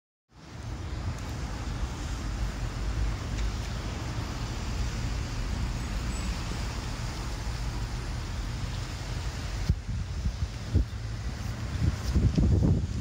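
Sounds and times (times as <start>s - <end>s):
wind rushing over microphone: 7.0s - 13.0s.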